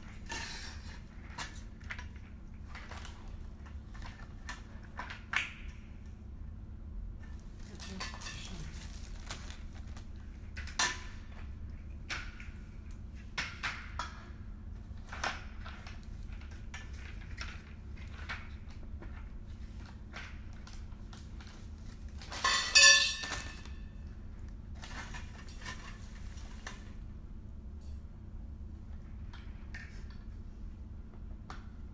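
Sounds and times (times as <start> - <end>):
metal tubes knocking and clinking: 22.3 - 23.6
ringing metal clang: 22.5 - 23.7.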